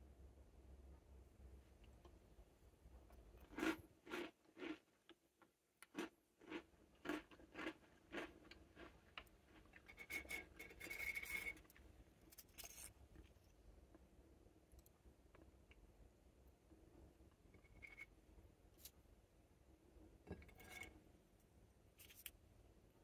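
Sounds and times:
squeaking scrape on plate: 9.9 - 11.7, 20.4 - 21.0.

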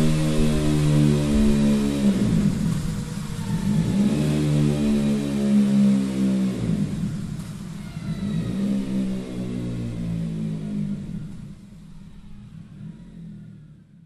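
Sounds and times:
motorcycle engine revving: 0.0 - 14.0.

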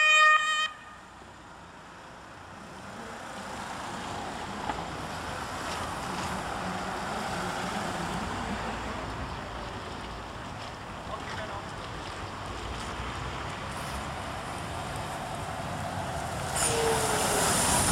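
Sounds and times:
vehicles driving past: 0.0 - 17.9.

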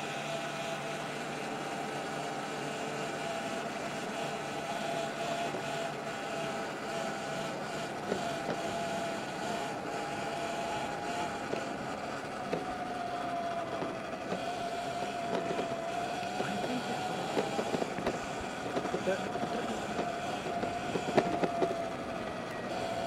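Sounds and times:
electric motor whine: 0.0 - 23.0
wind: 0.0 - 23.0
tyres on dirt: 13.4 - 23.0.

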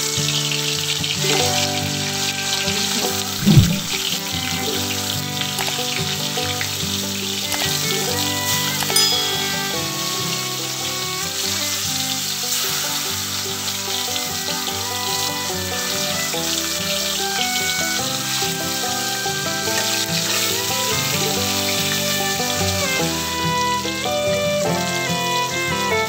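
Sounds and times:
fish sizzling in hot oil: 0.0 - 1.2, 11.9 - 14.2.

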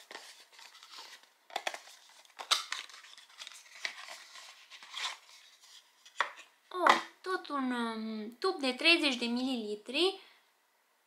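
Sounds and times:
packaging crinkling: 0.0 - 6.2.

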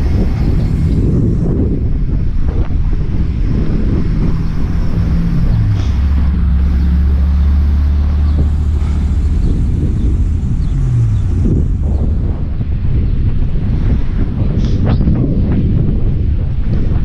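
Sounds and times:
car engine low hum: 0.0 - 17.0
wind buffeting microphone: 0.0 - 17.0.

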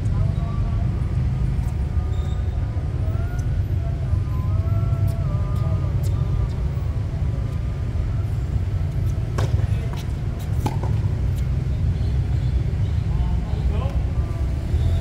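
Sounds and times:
tennis ball knocks: 9.4 - 11.2.

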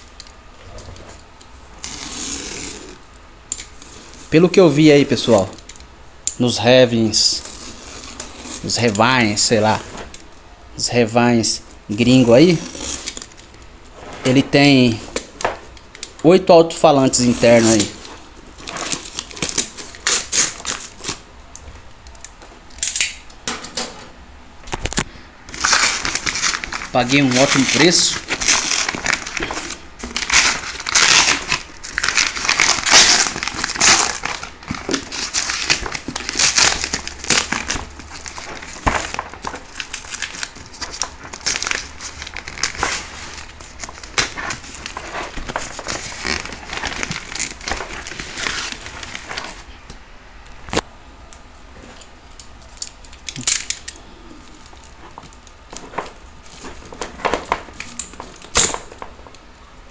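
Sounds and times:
boxes crinkling and rustling: 11.9 - 24.0, 24.7 - 49.7, 51.7 - 59.5.

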